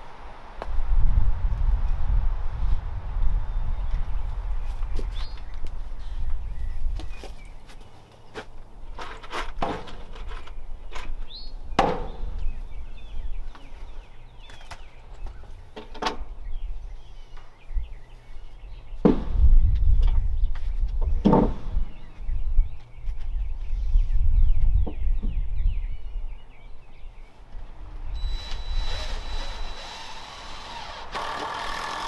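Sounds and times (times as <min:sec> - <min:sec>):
hammer knocking on wooden boards: 0:19.0 - 0:19.4.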